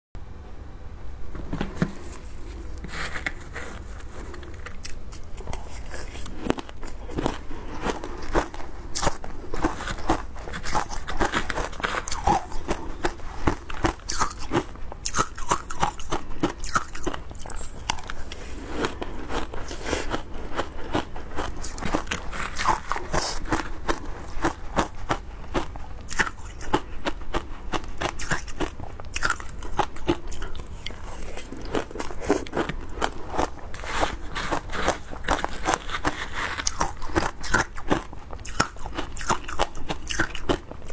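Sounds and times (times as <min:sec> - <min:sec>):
shaved ice crunching while chewed: 0:02.0 - 0:40.9.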